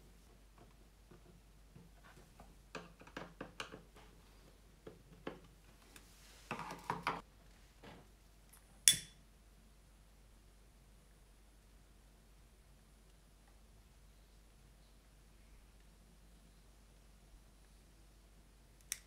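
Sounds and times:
lighter click: 0:08.8 - 0:09.2, 0:18.8 - 0:19.0.

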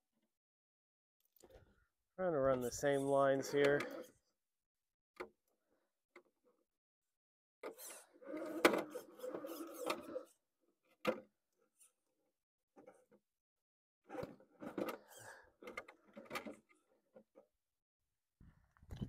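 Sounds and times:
toy car motor whirring: 0:07.6 - 0:10.4, 0:14.7 - 0:15.4.

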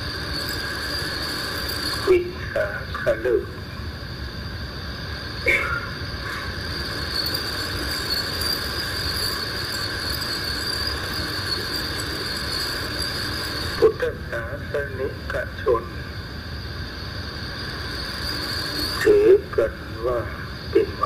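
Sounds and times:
background hiss: 0:00.0 - 0:21.0
high insect chorus: 0:00.0 - 0:21.0.

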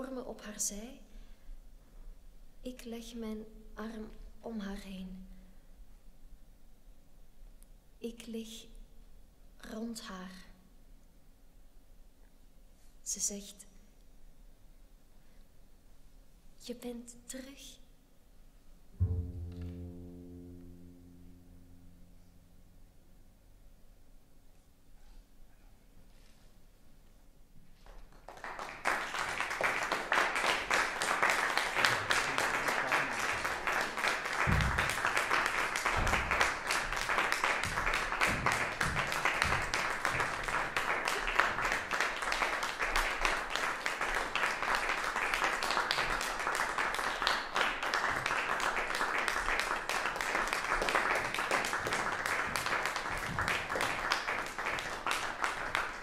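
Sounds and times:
audience applauding: 0:27.8 - 0:56.0.

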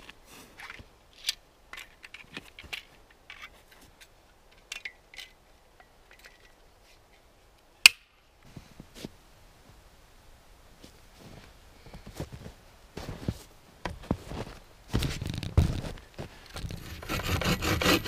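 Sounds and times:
hand tool clicking and scraping: 0:00.0 - 0:07.2, 0:16.4 - 0:18.0.

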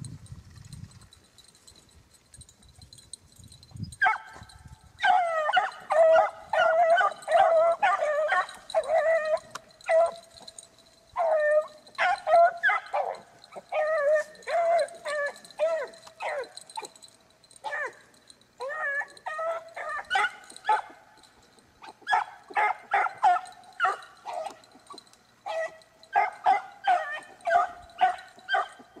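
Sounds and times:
hounds baying: 0:04.0 - 0:29.0.

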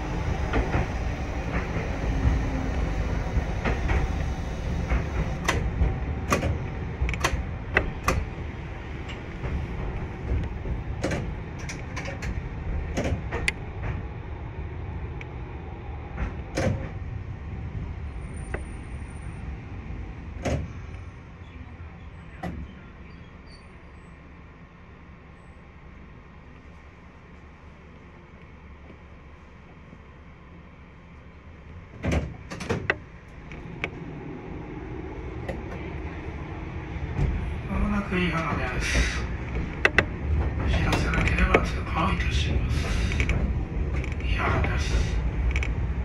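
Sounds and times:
streetcar rumbling on track: 0:00.0 - 0:46.0
wheels clicking over rail joints: 0:37.1 - 0:46.0.

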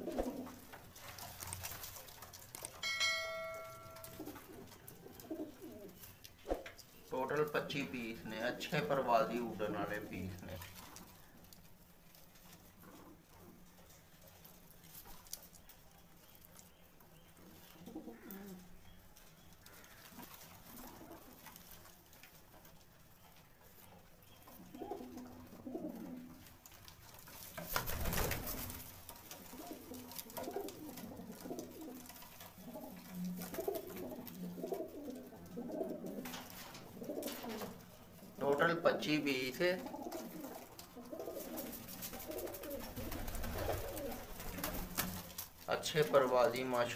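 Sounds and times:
pigeons cooing: 0:00.0 - 0:46.9.

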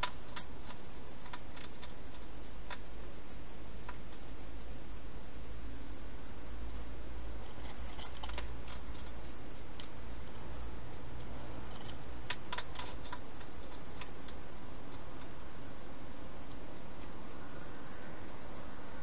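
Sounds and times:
hedgehog eating clicks and crunches: 0:00.0 - 0:15.5
steady hiss and low hum: 0:00.0 - 0:19.0.

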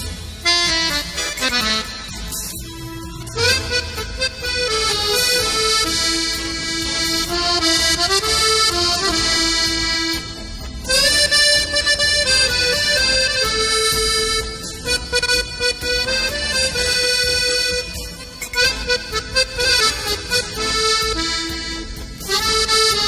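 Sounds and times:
accordion slow melody: 0:00.0 - 0:23.0.

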